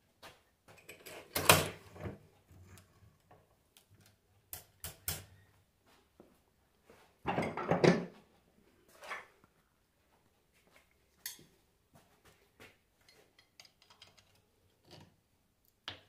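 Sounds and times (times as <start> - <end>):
metal parts clicking and clattering: 13.2 - 15.1.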